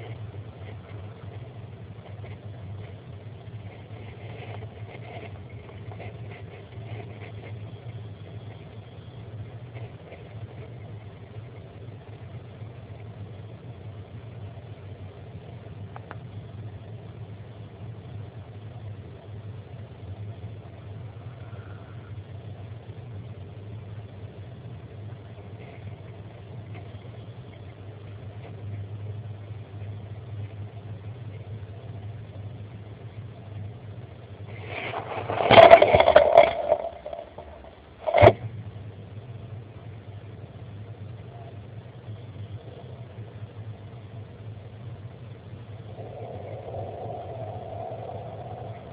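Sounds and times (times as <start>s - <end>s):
faint hiss: 0.0s - 48.9s
low hum: 0.0s - 48.9s.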